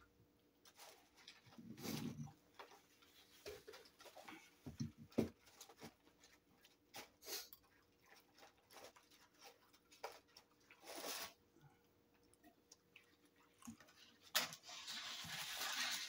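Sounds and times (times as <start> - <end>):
fries rustling on paper plate: 5.1 - 11.6, 13.6 - 16.0.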